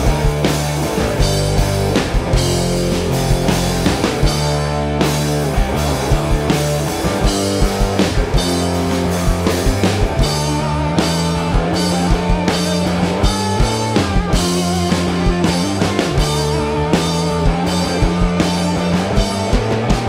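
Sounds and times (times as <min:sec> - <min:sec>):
low bass notes: 0:00.0 - 0:20.0
rock band playing live: 0:00.0 - 0:20.0.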